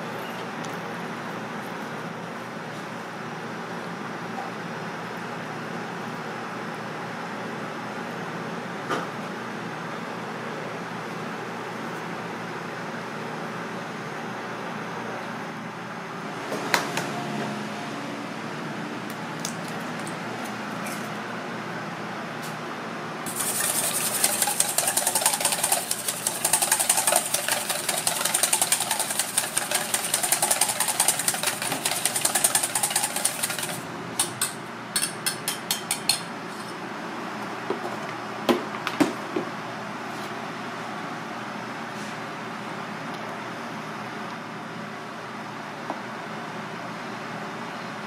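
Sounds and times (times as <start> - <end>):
steady background hum: 0.0 - 48.0
whisk clattering in metal bowl: 23.3 - 36.2.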